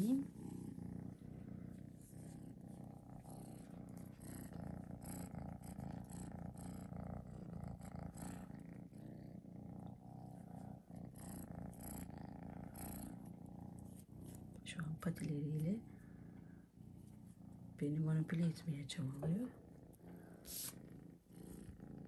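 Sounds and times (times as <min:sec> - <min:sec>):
kitten purring: 0:00.0 - 0:22.0.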